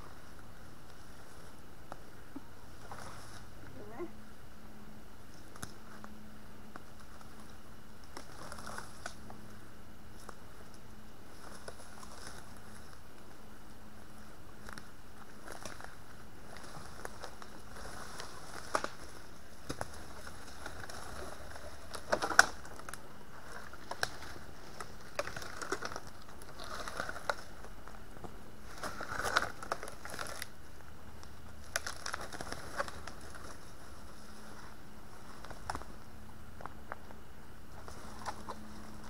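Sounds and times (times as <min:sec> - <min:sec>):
faint steady hiss: 0:00.0 - 0:39.0
twigs crackling and snapping: 0:05.3 - 0:09.5, 0:14.5 - 0:34.6, 0:35.2 - 0:36.0
leaf litter rustling: 0:07.0 - 0:13.3, 0:13.9 - 0:36.1.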